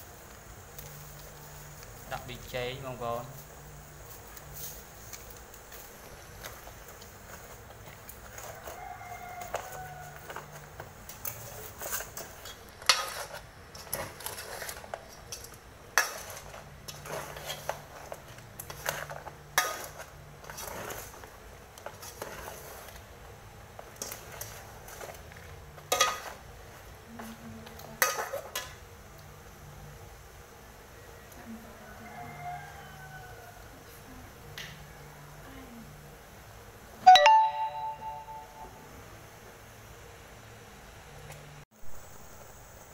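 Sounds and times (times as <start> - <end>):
metal ladle scraping a pot: 9.4 - 23.0, 25.8 - 26.4.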